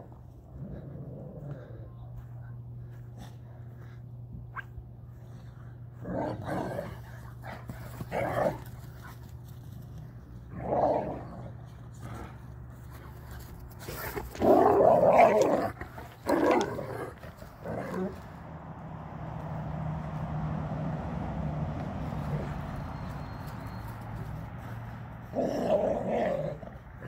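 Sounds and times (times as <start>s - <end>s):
dogs growling and barking: 0.0s - 1.8s, 5.9s - 9.2s, 10.4s - 18.4s, 22.0s - 22.7s, 25.2s - 27.0s.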